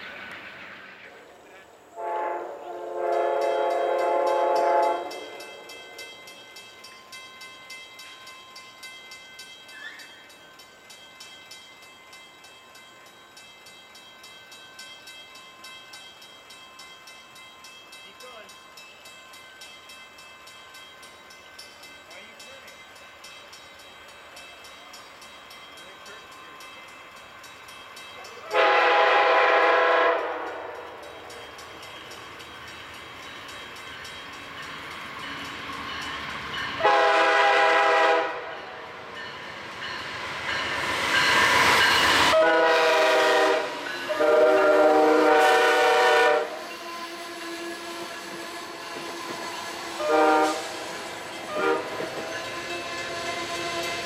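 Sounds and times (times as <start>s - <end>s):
train cars rumbling on rails: 0.0s - 5.9s, 21.8s - 54.0s
train air horn blasts: 2.0s - 5.4s, 28.5s - 30.8s, 36.8s - 38.6s, 42.3s - 50.9s, 51.5s - 54.0s.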